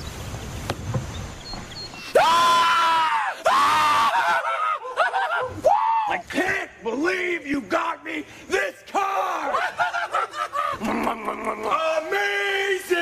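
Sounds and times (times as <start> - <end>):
man screaming with excitement: 2.2 - 6.3.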